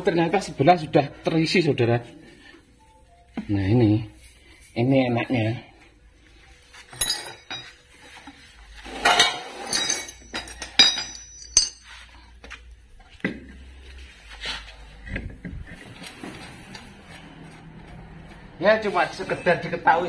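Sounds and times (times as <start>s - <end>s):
metal scrape: 6.8s - 12.1s
metal tools clinking: 6.9s - 8.2s, 8.9s - 12.2s.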